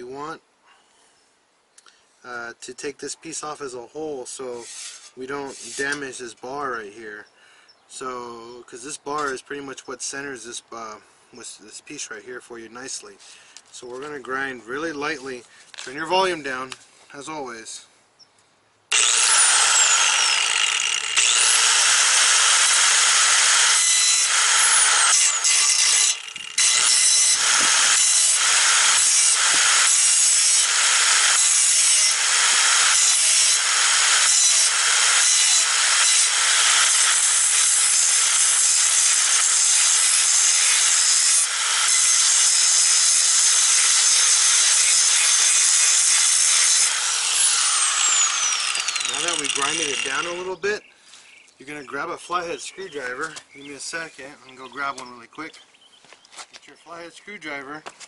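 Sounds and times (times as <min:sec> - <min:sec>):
angle grinder grinding steel: 0:04.5 - 0:06.2, 0:18.9 - 0:50.7.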